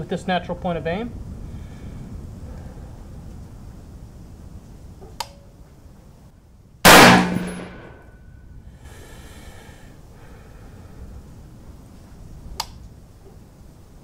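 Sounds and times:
faint click: 0:05.2 - 0:05.4
rifle gunshot: 0:06.9 - 0:08.0.

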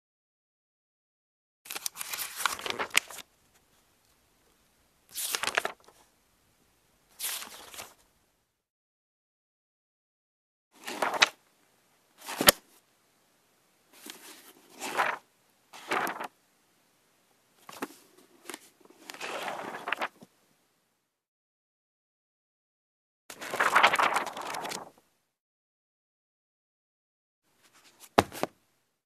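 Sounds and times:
book pages turning: 0:01.7 - 0:03.6, 0:05.1 - 0:06.0, 0:07.2 - 0:08.0, 0:10.8 - 0:11.4, 0:12.2 - 0:12.6, 0:14.0 - 0:15.2, 0:15.8 - 0:16.3, 0:17.6 - 0:20.3, 0:23.3 - 0:25.0, 0:27.6 - 0:28.6
sharp paper snap: 0:12.4 - 0:12.6.

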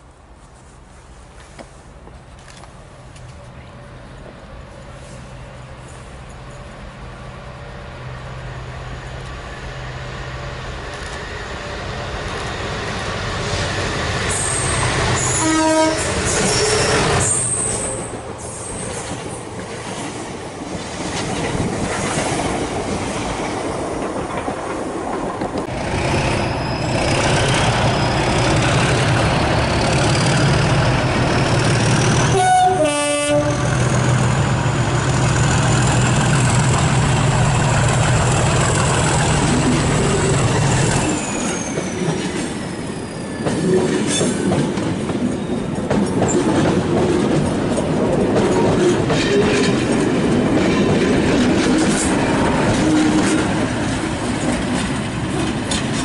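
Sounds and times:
diesel locomotive engine: 0:00.0 - 0:56.0
trains passing: 0:00.0 - 0:56.0
wheel noise on rails: 0:00.0 - 0:56.0
train horn: 0:15.2 - 0:17.8, 0:32.2 - 0:33.9.

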